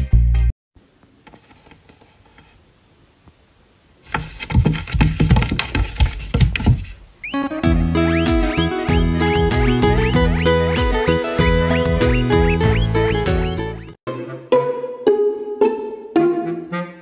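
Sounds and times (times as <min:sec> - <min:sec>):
cat thumping on wooden shelf: 0:04.1 - 0:06.9.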